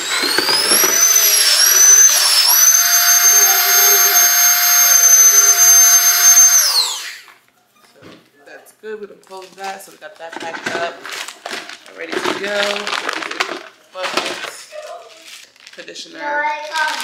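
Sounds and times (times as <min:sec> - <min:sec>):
vacuum motor whine: 0:00.0 - 0:07.3.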